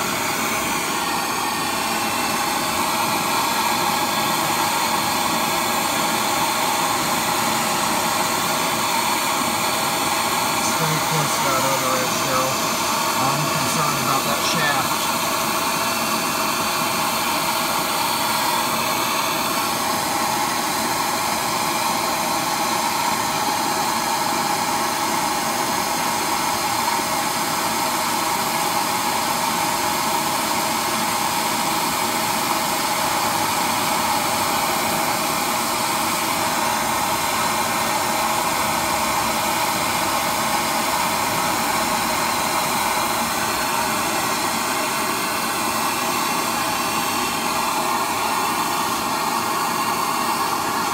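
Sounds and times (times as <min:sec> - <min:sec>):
gas torch hissing: 0:00.0 - 0:21.1.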